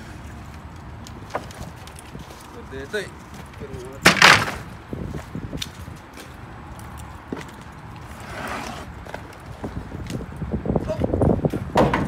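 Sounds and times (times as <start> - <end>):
footsteps on slushy pavement: 0.0 - 4.0, 4.9 - 10.3
wooden pallets knocking: 4.0 - 4.7, 11.6 - 12.0
pallet scraping: 8.2 - 9.0.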